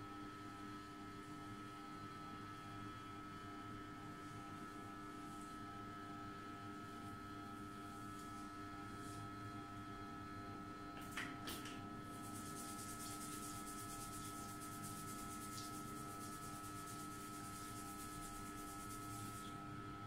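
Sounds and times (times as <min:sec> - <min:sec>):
fingers rubbing through hair: 0:12.1 - 0:19.6.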